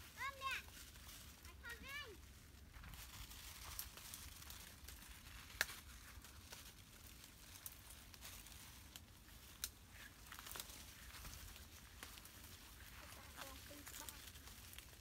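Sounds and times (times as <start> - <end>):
foliage rustling: 0.0 - 15.0
stems and twigs snapping: 3.4 - 15.0.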